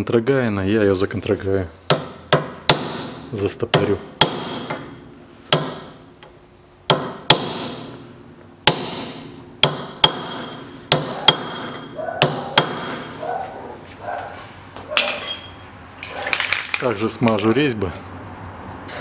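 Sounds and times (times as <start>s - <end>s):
hammer striking steel punch: 1.9s - 6.0s, 6.9s - 8.0s, 8.6s - 13.2s.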